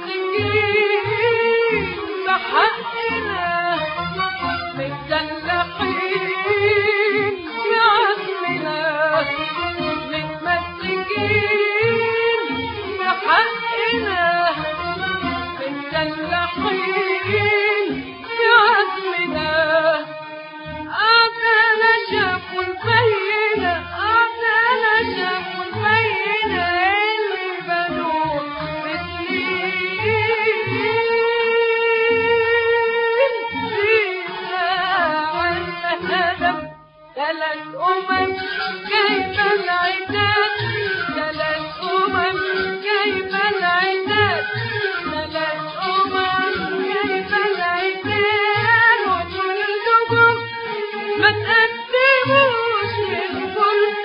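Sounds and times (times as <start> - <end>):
woman singing ornamented phrases: 0.0 - 3.9, 4.8 - 9.3, 10.0 - 14.6, 15.6 - 20.1, 20.9 - 36.6, 37.2 - 50.5, 51.2 - 54.0
strings: 0.0 - 54.0
person singing with vibrato: 37.2 - 54.0
orchestra accompaniment: 38.1 - 54.0.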